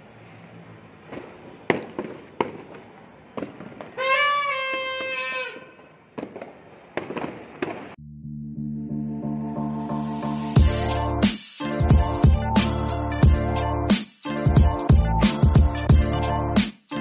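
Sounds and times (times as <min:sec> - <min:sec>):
fireworks and firecrackers banging: 0:01.1 - 0:08.0.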